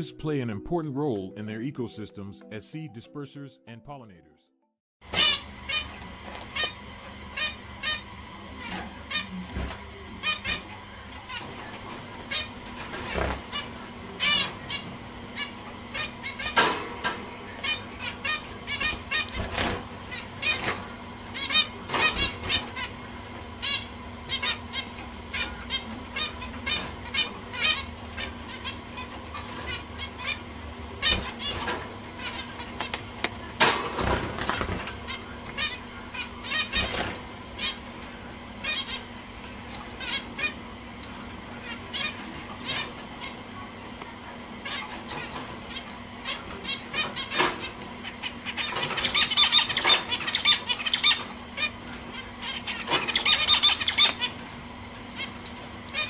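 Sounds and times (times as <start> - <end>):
finches calling: 10.2 - 33.2, 34.7 - 40.7, 44.6 - 54.5.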